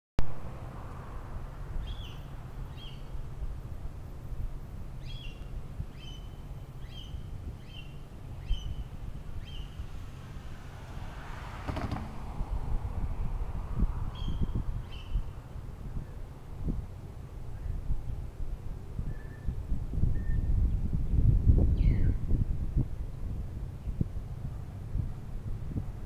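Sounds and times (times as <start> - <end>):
wind rumble on microphone: 0.2 - 26.0
car passing: 0.3 - 4.1, 8.0 - 15.8
bird chirping: 1.8 - 3.1, 5.0 - 9.8, 14.2 - 15.3.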